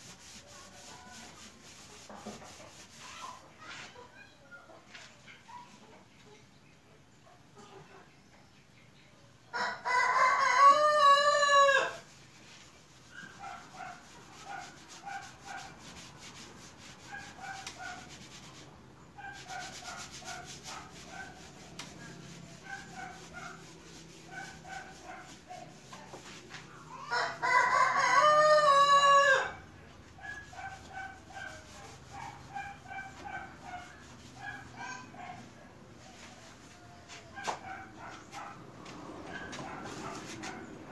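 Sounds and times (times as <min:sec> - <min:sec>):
rooster crowing: 0:09.5 - 0:12.0, 0:27.0 - 0:29.6.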